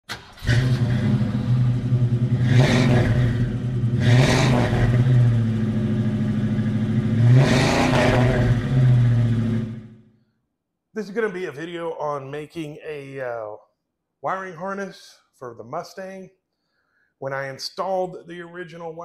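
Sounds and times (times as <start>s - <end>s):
car engine idling and revving: 0.1s - 10.0s.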